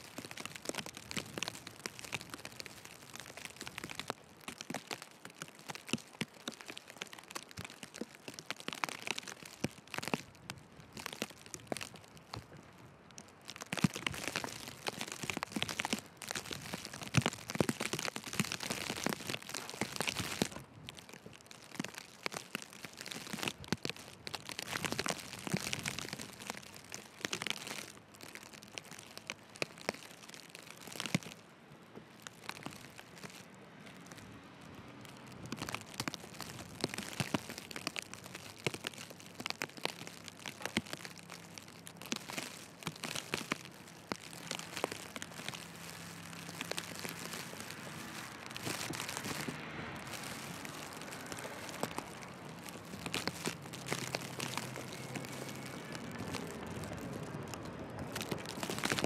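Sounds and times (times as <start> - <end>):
footsteps crunching in snow: 35.5 - 57.6.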